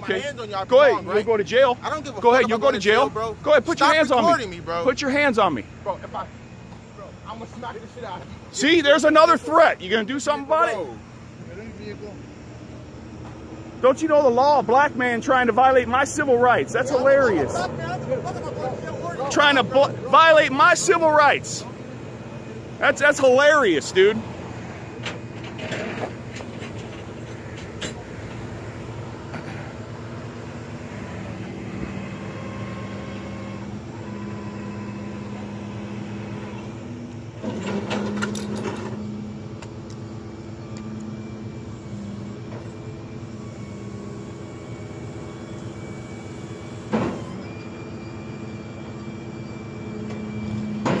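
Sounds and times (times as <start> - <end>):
tow truck engine hum and whine: 0.0 - 51.0.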